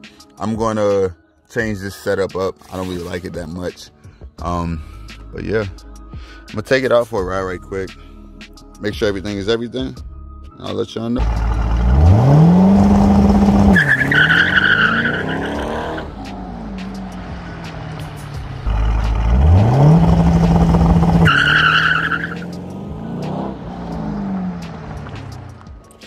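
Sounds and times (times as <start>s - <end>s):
car engine on launch limiter: 11.2s - 17.1s, 17.9s - 25.3s
tires squealing: 11.2s - 25.5s
car engine revving away: 11.2s - 25.7s.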